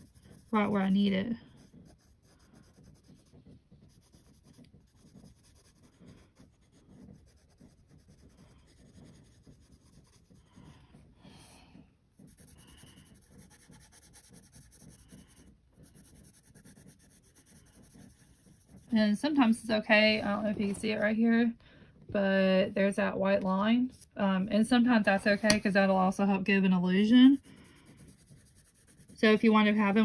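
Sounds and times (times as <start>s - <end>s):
pencil scratching on paper: 0.0s - 11.6s, 12.2s - 21.4s, 25.0s - 30.0s.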